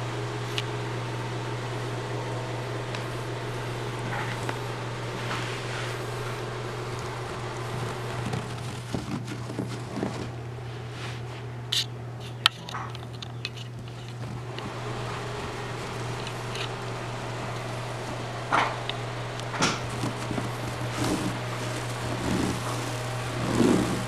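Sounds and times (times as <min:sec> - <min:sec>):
steady low hum: 0:00.0 - 0:24.0
puppies rustling on carpet: 0:03.6 - 0:11.6, 0:19.8 - 0:24.0.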